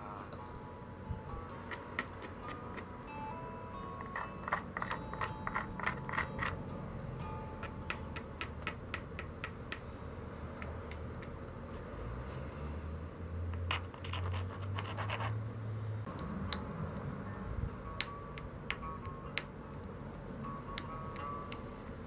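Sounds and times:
stone scratching: 0:04.0 - 0:06.6, 0:13.5 - 0:15.4.

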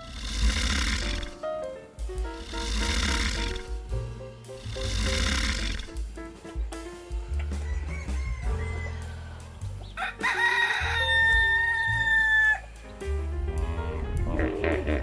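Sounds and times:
long animal call: 0:00.0 - 0:01.4, 0:02.4 - 0:03.7, 0:04.6 - 0:05.9
background music: 0:00.0 - 0:15.0.

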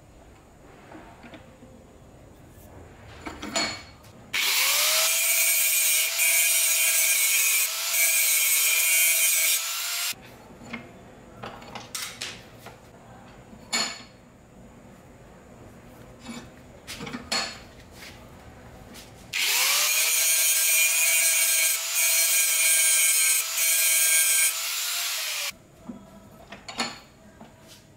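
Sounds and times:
angle grinder grinding metal: 0:04.4 - 0:10.2, 0:19.4 - 0:25.5.

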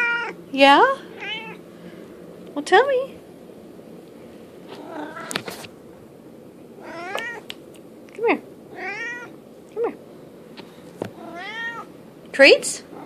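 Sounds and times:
cat meowing: 0:00.0 - 0:00.4, 0:01.2 - 0:01.6, 0:04.8 - 0:05.4, 0:06.8 - 0:07.5, 0:08.7 - 0:09.4, 0:11.2 - 0:11.9.

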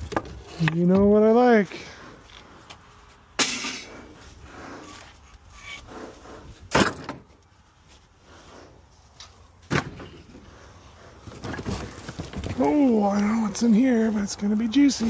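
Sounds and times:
junk clattering onto a trailer: 0:06.7 - 0:07.3, 0:09.6 - 0:10.5, 0:11.2 - 0:12.6.

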